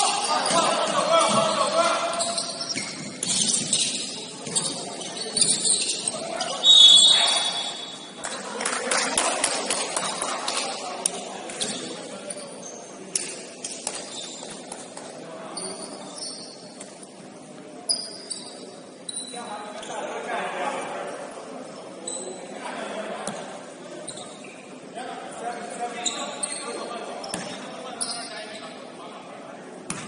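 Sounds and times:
scattered voices: 0:00.0 - 0:02.8
sneakers squeaking: 0:00.0 - 0:08.5, 0:11.1 - 0:20.1, 0:21.8 - 0:22.6, 0:23.2 - 0:28.9.

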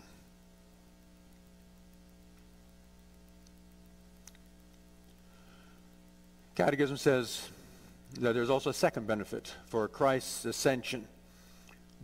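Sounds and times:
low electrical hum: 0:00.0 - 0:12.0
faint click: 0:01.3 - 0:03.6.

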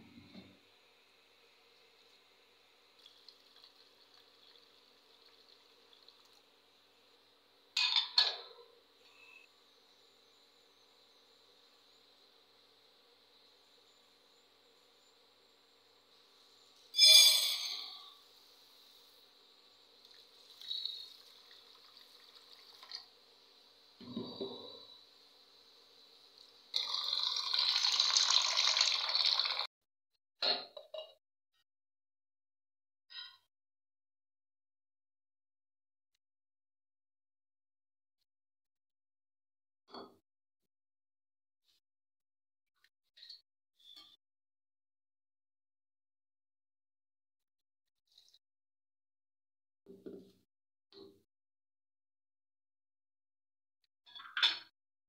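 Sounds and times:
tap water running into bowl: 0:26.7 - 0:29.7.

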